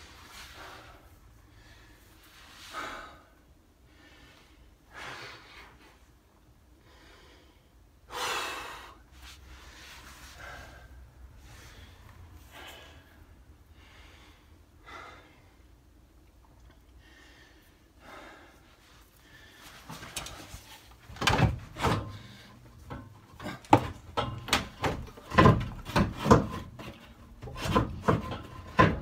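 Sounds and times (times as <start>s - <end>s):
man breathing hard: 0.0s - 16.1s, 16.8s - 20.8s, 21.9s - 24.0s.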